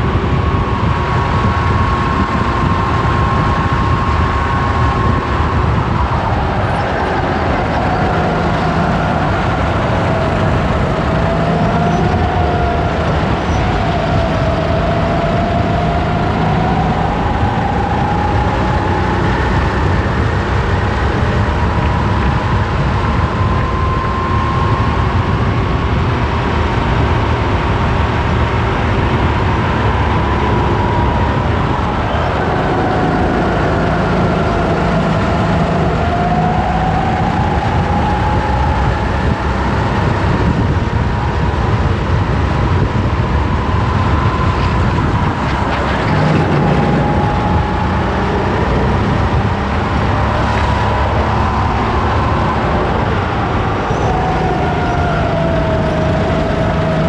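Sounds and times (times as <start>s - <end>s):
kart engine whine: 0.0s - 57.0s
rush of wind noise: 0.0s - 57.0s.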